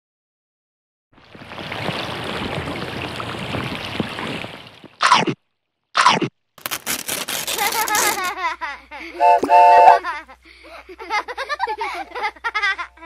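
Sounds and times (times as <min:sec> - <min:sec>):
running water bubbling: 0:01.2 - 0:05.4.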